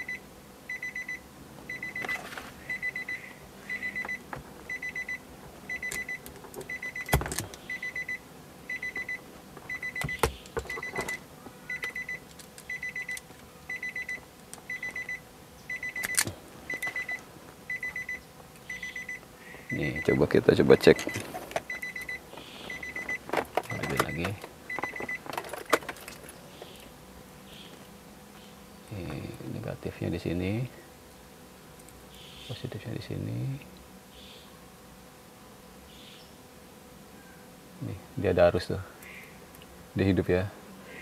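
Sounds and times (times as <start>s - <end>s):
rapid high electronic beeps: 11.7s - 25.2s.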